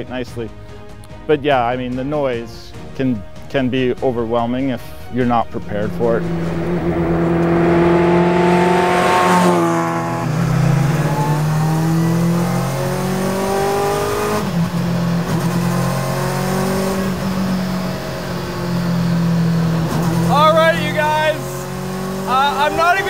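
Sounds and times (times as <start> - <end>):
motorcycle engine revving through gears: 5.9 - 20.5, 21.4 - 22.8.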